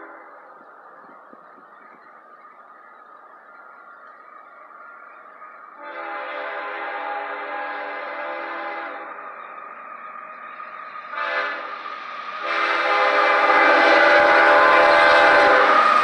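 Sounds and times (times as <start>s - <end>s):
train rumble: 0.0s - 16.0s
locomotive air horn blasts: 5.8s - 9.2s, 11.1s - 11.8s, 12.4s - 16.0s.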